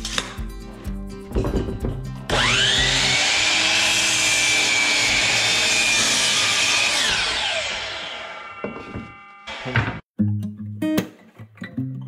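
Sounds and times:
miter saw whining: 0:02.3 - 0:10.0.

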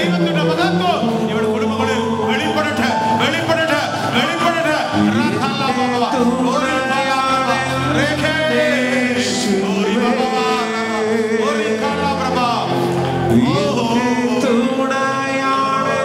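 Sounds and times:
instrumental accompaniment: 0:00.0 - 0:16.0
man singing devotional song: 0:00.0 - 0:16.0
sustained bass drone: 0:02.1 - 0:08.4.

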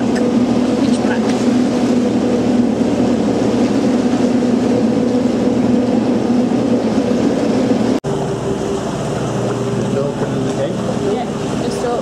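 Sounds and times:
boat engine droning in tunnel: 0:00.0 - 0:12.0.

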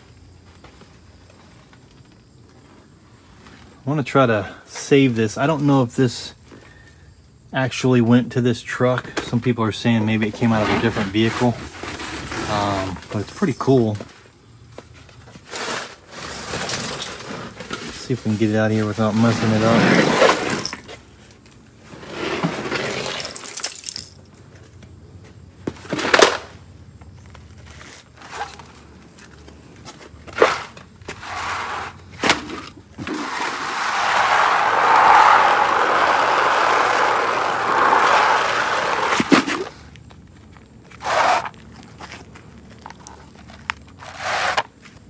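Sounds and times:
rushing noise: 0:33.0 - 0:39.7.

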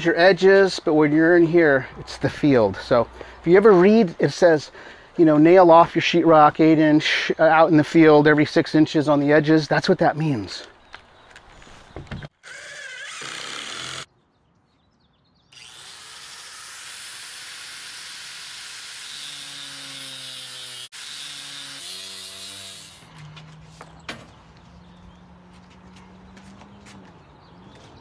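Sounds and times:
cordless drill driving screw: 0:12.4 - 0:14.1, 0:15.6 - 0:20.3
power saw cutting cement board: 0:12.4 - 0:14.1, 0:15.6 - 0:23.1.

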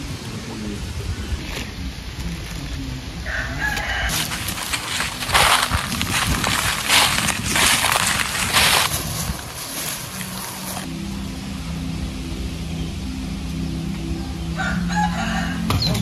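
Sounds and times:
footsteps crunching dry leaves: 0:03.3 - 0:10.9.

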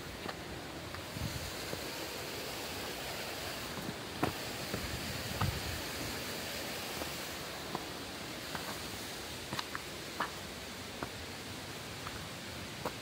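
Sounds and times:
waterfall rushing: 0:00.0 - 0:12.9
footsteps on stones and leaves: 0:02.9 - 0:06.1, 0:06.9 - 0:11.3, 0:12.0 - 0:13.0.

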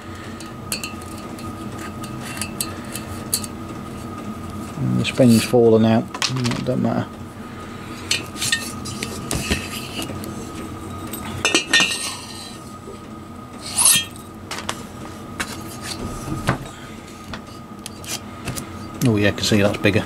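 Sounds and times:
piston ring clinking on metal: 0:00.4 - 0:03.6.

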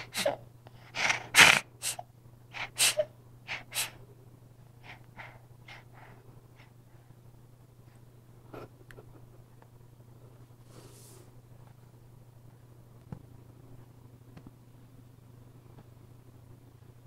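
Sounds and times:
breathy puffs and sniffs: 0:10.6 - 0:11.4.

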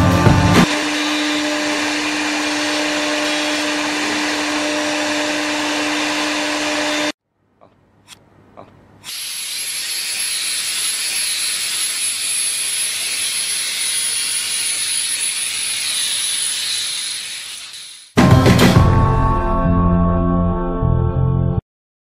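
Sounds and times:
machine hiss: 0:09.0 - 0:18.2.

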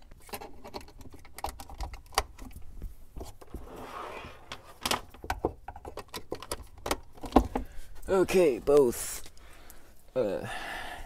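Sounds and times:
packaging rustling slide: 0:03.4 - 0:05.0
boxes knocking and clicking: 0:04.5 - 0:07.7.

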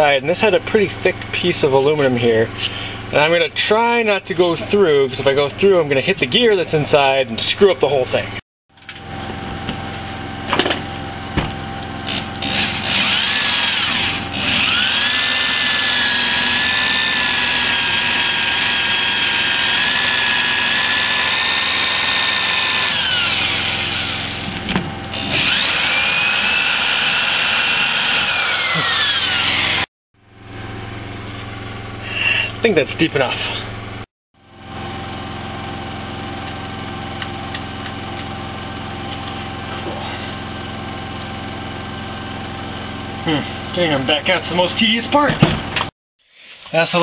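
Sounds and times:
electric drill boring into metal: 0:12.1 - 0:29.9.

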